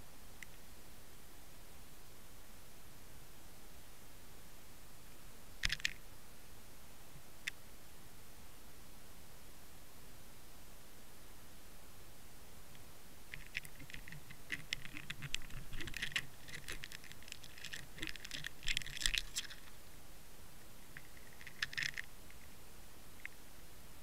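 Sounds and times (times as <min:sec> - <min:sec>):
camera housing scraping stones: 0:13.4 - 0:19.8, 0:20.8 - 0:22.4.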